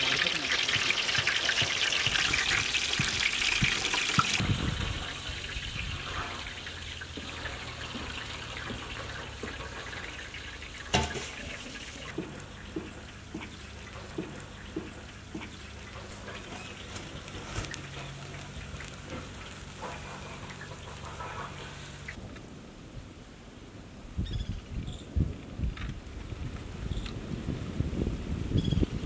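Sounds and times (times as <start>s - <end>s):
cooking juices dripping: 0.0s - 21.0s.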